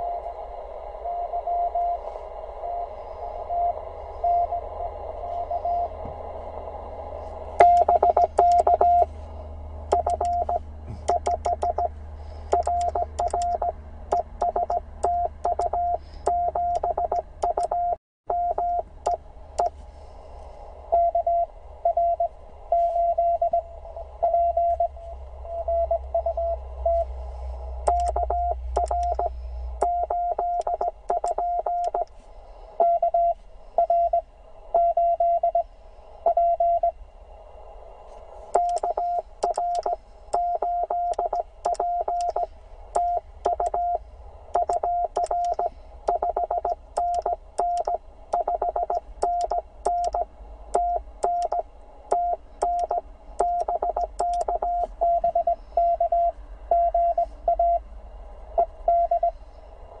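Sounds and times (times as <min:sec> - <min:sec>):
morse code tone: 0:00.0 - 0:00.2, 0:03.5 - 0:06.0, 0:07.6 - 0:09.1, 0:09.9 - 0:11.9, 0:12.5 - 0:19.8, 0:20.9 - 0:27.1, 0:27.9 - 0:32.1, 0:32.8 - 0:34.2, 0:36.3 - 0:36.9, 0:38.6 - 0:44.0, 0:44.6 - 0:57.8, 0:58.6 - 0:59.3
faint radio hiss: 0:00.0 - 0:09.9, 0:32.0 - 0:34.8, 0:54.1 - 1:00.0.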